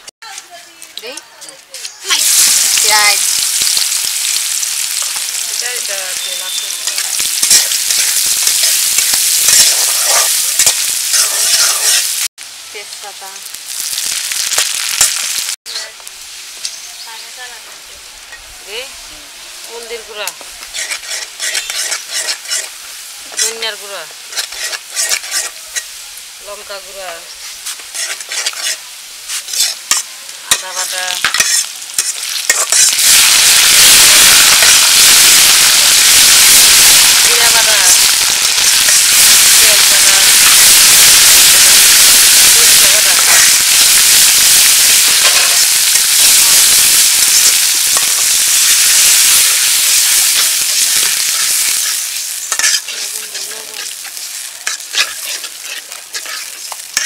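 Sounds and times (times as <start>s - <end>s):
onions sizzling in hot oil: 2.0s - 57.0s
metal spatula scraping pan: 6.2s - 12.2s, 20.6s - 26.0s, 27.1s - 33.2s, 37.5s - 46.6s, 47.2s - 57.0s.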